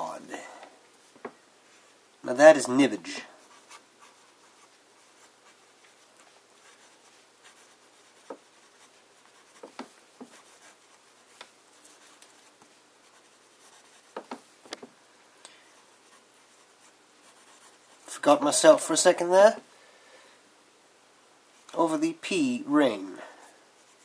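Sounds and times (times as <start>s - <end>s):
pen nib scratching on paper: 3.4s - 14.4s, 15.8s - 18.1s.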